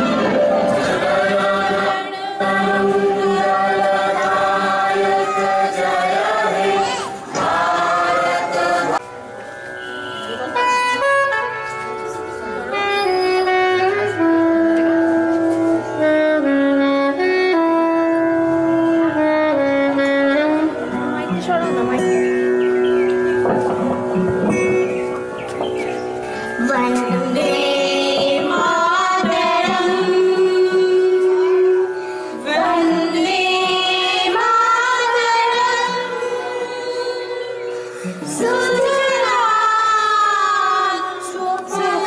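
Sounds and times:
group of people singing: 0:00.0 - 0:09.1, 0:27.1 - 0:31.6, 0:32.3 - 0:42.0
slow instrumental melody: 0:07.1 - 0:40.7.

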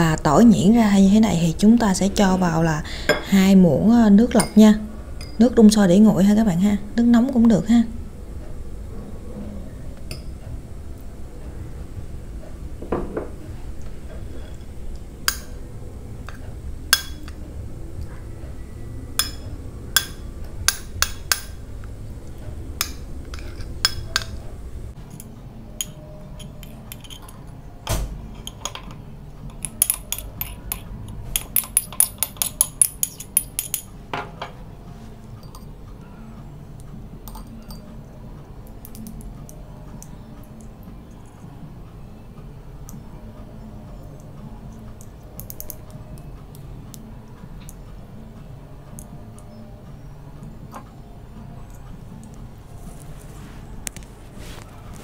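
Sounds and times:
metal spoon clinking on plate: 0:05.2 - 0:05.4, 0:28.4 - 0:33.9.

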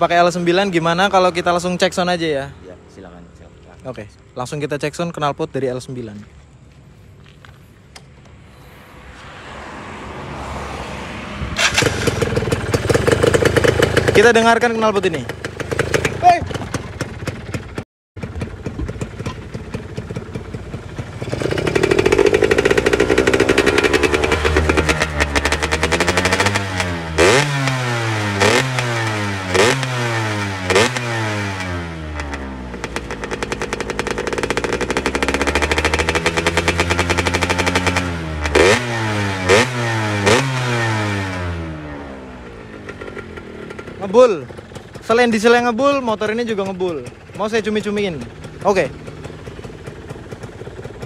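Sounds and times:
two-stroke motorcycle engine revving: 0:11.4 - 0:51.0.

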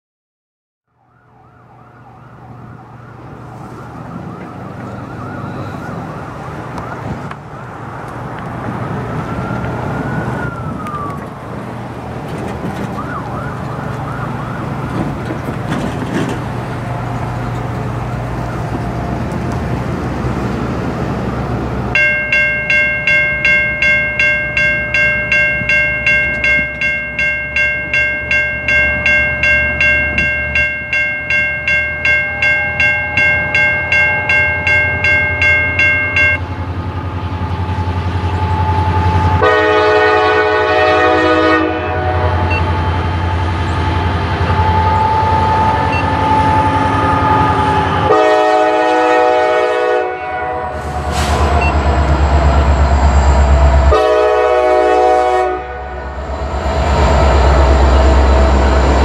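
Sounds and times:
distant siren wailing: 0:00.9 - 0:15.5, 0:22.0 - 0:59.0
railroad crossing bell ringing: 0:21.9 - 0:49.9, 0:51.0 - 0:59.0.

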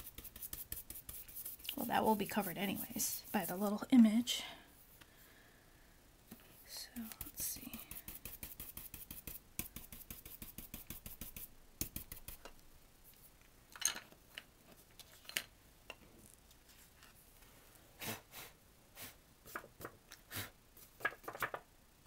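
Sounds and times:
brush scrubbing ink on cardstock: 0:00.0 - 0:03.8, 0:07.1 - 0:12.4.

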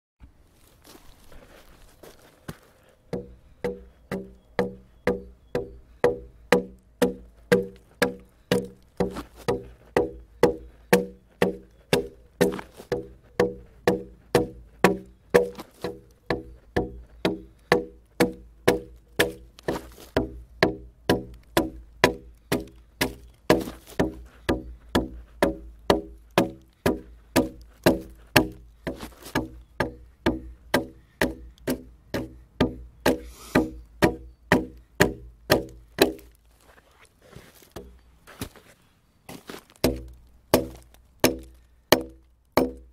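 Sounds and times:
music with knocking beat: 0:03.1 - 0:19.5, 0:20.2 - 0:36.2.

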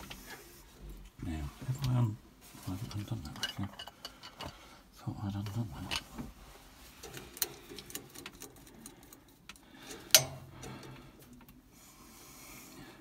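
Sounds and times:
hands fitting wires clicking: 0:07.0 - 0:11.6.

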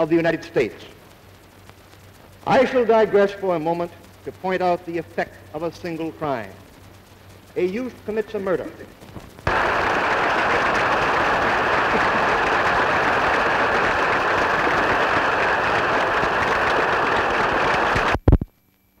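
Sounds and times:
audience applauding: 0:09.5 - 0:18.2.

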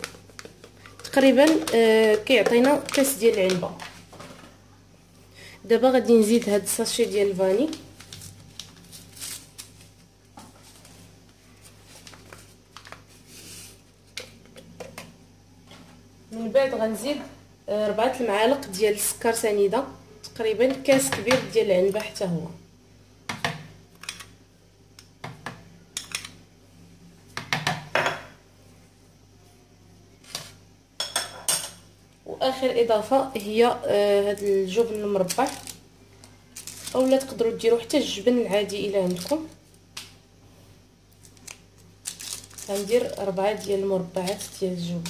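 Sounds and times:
spoon tapping plastic: 0:00.0 - 0:03.6
paper rustling: 0:07.6 - 0:13.9.

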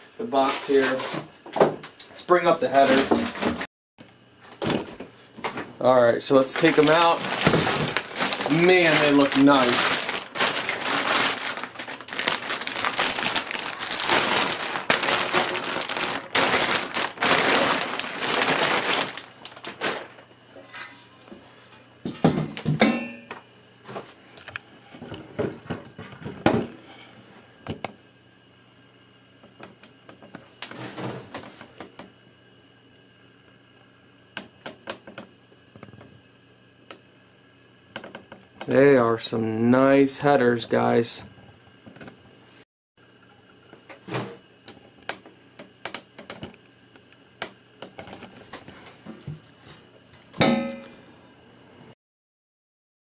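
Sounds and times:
plastic wrap rustling: 0:06.2 - 0:20.3
ringing metal clank: 0:22.8 - 0:23.3, 0:50.4 - 0:51.0.

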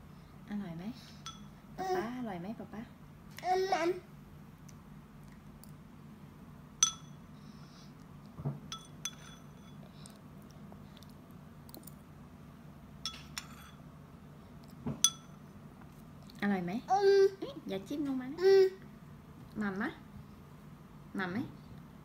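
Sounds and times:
spoon clinking ceramic bowl: 0:01.2 - 0:01.6, 0:06.8 - 0:07.2, 0:08.7 - 0:09.8, 0:13.0 - 0:13.8, 0:15.0 - 0:15.4.

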